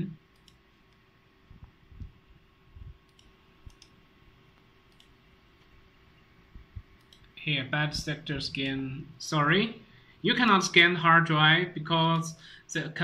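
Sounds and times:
computer equipment humming: 0:00.0 - 0:13.0
computer mouse clicks: 0:00.3 - 0:01.0, 0:03.0 - 0:05.7, 0:06.9 - 0:07.4.

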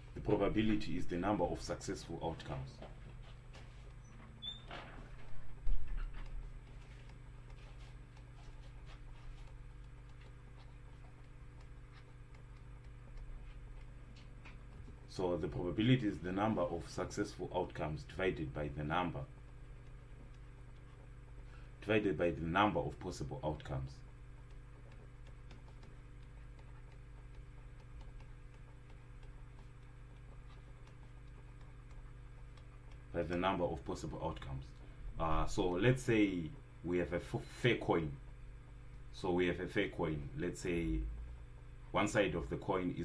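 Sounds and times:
low electrical hum: 0:00.0 - 0:43.0
stylus scratching on tablet: 0:00.3 - 0:34.5
pointing device ticks and taps: 0:03.9 - 0:36.4.

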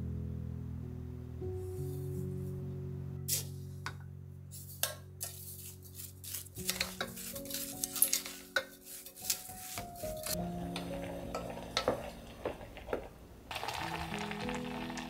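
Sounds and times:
soft background music: 0:00.0 - 0:15.0
wooden spoon scraping a pot: 0:04.6 - 0:13.2.

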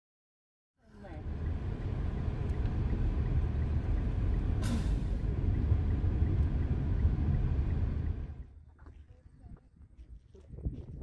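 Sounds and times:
car interior engine and road rumble: 0:00.8 - 0:09.2
short hiss: 0:04.6 - 0:05.2.

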